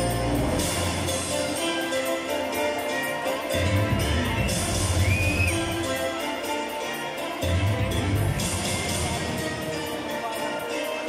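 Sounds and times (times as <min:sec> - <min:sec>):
deep bass line: 0:00.0 - 0:01.5, 0:03.6 - 0:06.0, 0:07.4 - 0:09.7
music with held chords: 0:00.0 - 0:11.0.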